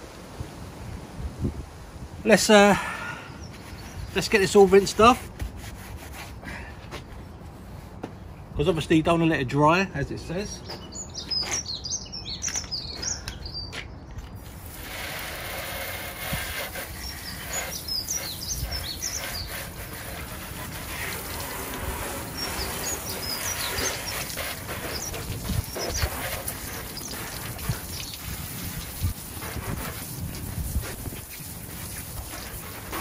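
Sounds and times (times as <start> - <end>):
birds chirping: 2.3 - 5.2, 7.0 - 33.0
garden hose spraying water: 14.4 - 33.0.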